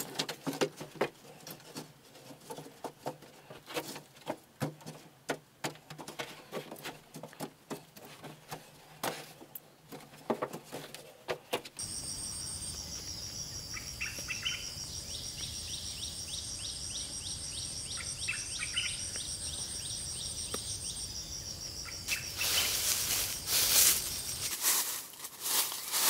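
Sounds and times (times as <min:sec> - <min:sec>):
bird chirping: 0:11.8 - 0:24.5
insects trilling: 0:11.8 - 0:26.0
rustling: 0:21.9 - 0:26.0.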